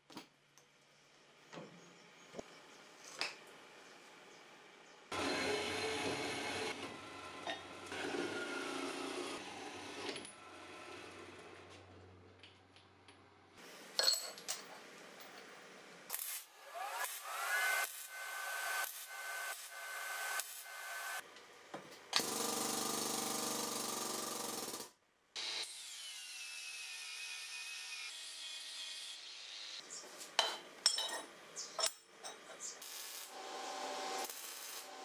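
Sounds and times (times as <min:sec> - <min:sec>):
power tool whining: 0:22.2 - 0:25.6.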